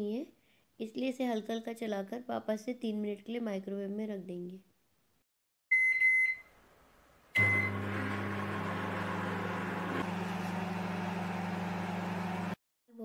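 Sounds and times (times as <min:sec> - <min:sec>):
microwave keypad beeps: 0:05.7 - 0:06.5, 0:07.4 - 0:08.0
microwave oven humming: 0:07.4 - 0:12.6.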